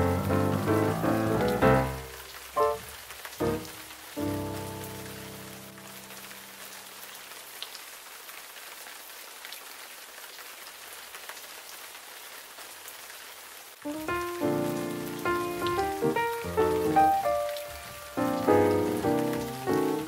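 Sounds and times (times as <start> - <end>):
held music chord: 0.0 - 2.8, 13.9 - 20.0
soft rain hiss: 0.0 - 20.0.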